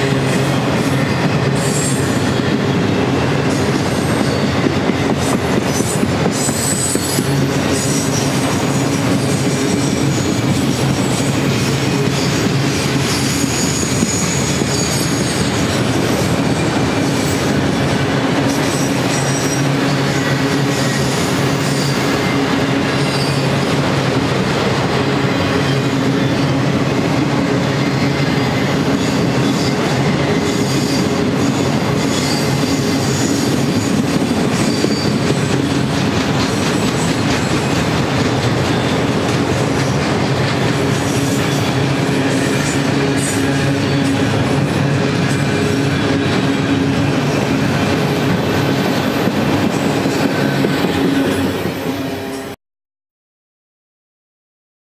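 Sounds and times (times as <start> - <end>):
train wheels on track: 0.0 - 52.6
wheel squeals: 3.7 - 16.2, 18.5 - 23.7, 27.8 - 37.8.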